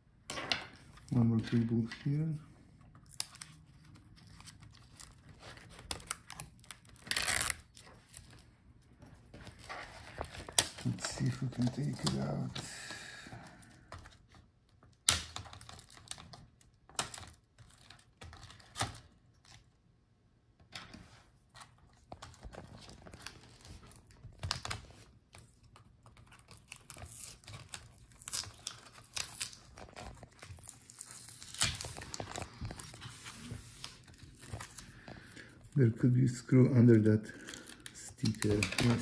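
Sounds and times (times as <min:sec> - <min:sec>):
light crinkling and scratching: 0:00.8 - 0:12.8, 0:20.7 - 0:39.0.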